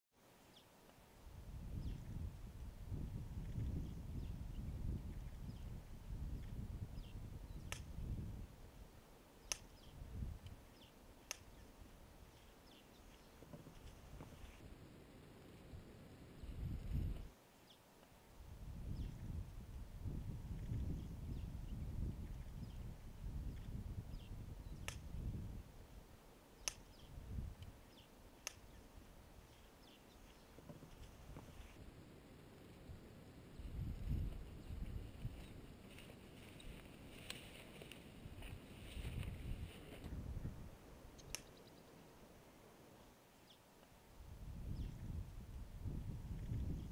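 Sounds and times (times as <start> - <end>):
low wind-like rumble: 1.2 - 17.4, 18.2 - 43.0, 44.0 - 46.9
sharp clicks: 7.6 - 8.0, 9.4 - 10.6, 11.2 - 11.6, 24.7 - 25.2, 26.6 - 27.7, 28.4 - 28.8, 41.2 - 41.8
faint bird chirps: 41.1 - 42.1, 44.6 - 45.2.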